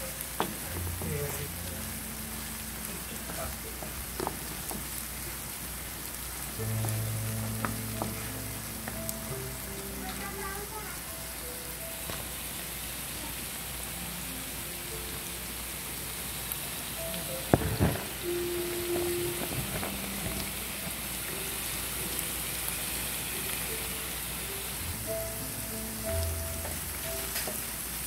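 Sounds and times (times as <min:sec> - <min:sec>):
vegetables sizzling in a frying pan: 0:00.0 - 0:28.0.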